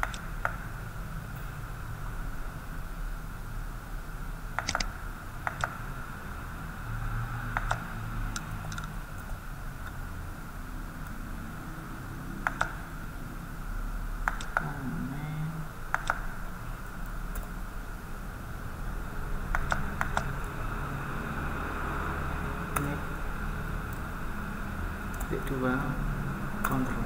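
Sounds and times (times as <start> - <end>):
keyboard and mouse clicks: 0.0 - 0.6, 4.6 - 5.8, 7.5 - 10.0, 12.4 - 12.9, 14.2 - 14.8, 15.9 - 16.5, 17.3 - 17.6, 19.5 - 20.3, 25.1 - 25.4
faint background hum: 0.0 - 27.0.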